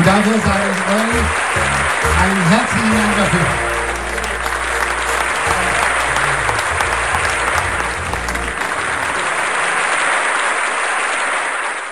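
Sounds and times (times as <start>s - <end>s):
people applauding: 0.0s - 11.9s.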